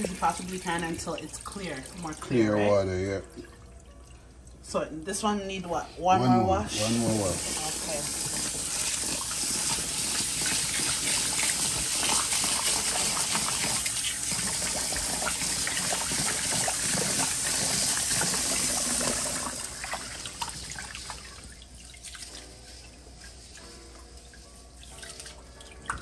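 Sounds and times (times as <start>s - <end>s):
faucet running into a bowl: 0.0s - 2.6s, 6.7s - 22.4s.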